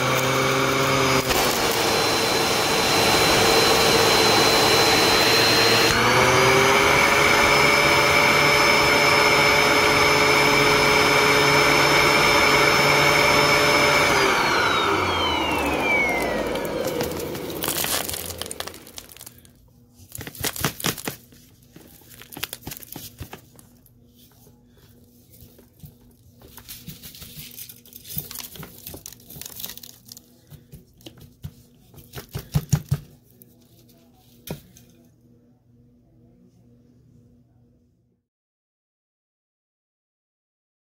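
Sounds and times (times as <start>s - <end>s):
vacuum cleaner winding down: 0.0s - 19.4s
debris crackling and rustling: 15.9s - 19.5s.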